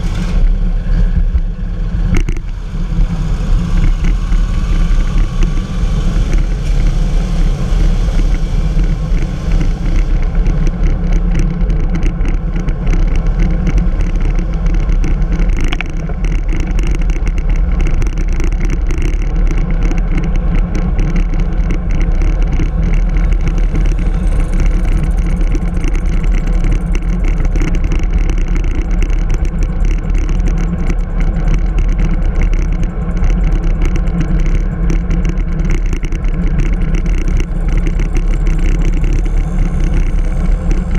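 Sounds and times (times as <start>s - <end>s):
wind rush: 0.0s - 18.3s
road rumble: 0.0s - 40.9s.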